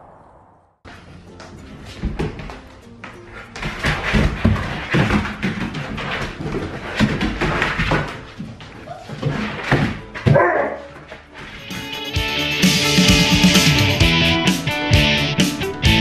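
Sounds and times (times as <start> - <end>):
music: 0.9 - 16.0
dogs barking and growling: 8.8 - 11.1.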